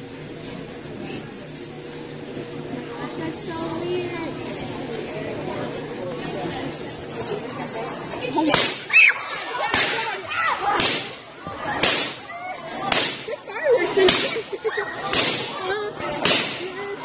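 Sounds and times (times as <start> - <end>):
electric sparks cracking with hiss: 6.7 - 9.0, 9.7 - 17.0.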